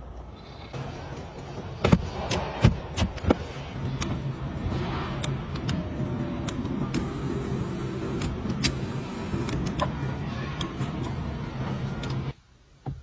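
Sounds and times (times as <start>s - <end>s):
power seat motor whirring: 5.2s - 12.3s.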